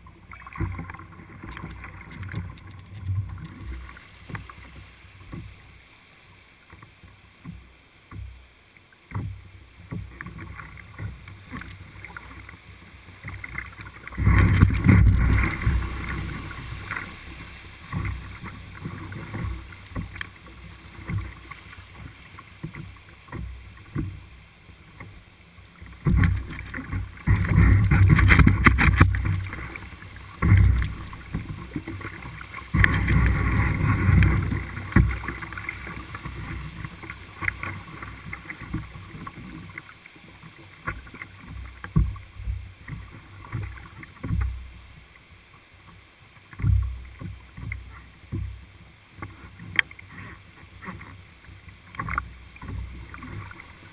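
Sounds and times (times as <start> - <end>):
knocks and thumps on canoe: 0.0 - 5.7, 9.1 - 12.5, 13.2 - 25.2, 25.8 - 44.8, 46.4 - 53.9
river rapids rushing and splashing: 10.2 - 46.6.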